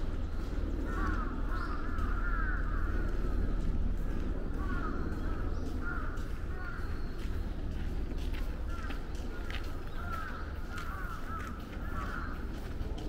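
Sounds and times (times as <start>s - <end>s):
steady low rumble: 0.0s - 13.0s
crows cawing: 0.8s - 3.6s, 4.5s - 7.2s, 8.4s - 12.8s.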